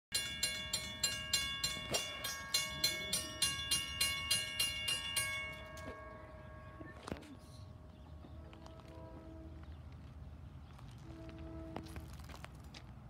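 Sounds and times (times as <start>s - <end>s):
railroad crossing bell ringing: 0.1s - 8.2s.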